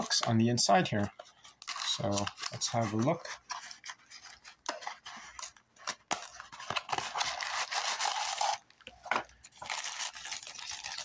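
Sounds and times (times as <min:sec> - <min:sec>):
plastic bag crinkling: 0:01.6 - 0:03.2, 0:05.4 - 0:11.0.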